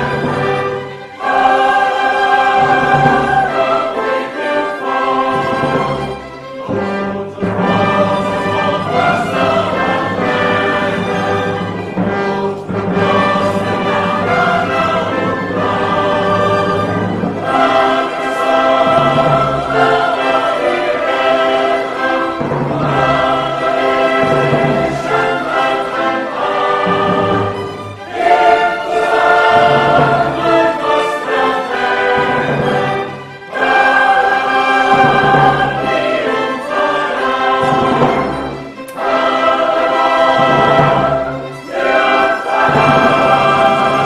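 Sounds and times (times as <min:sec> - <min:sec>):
choir singing with orchestra: 0:00.0 - 0:44.0.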